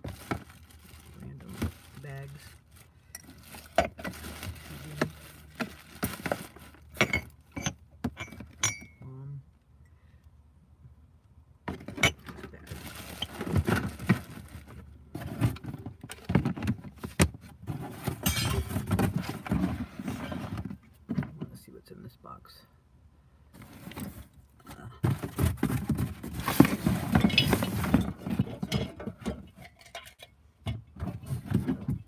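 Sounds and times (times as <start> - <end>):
plastic cases clicking and clattering: 3.2 - 8.6, 11.7 - 21.3, 25.1 - 30.3.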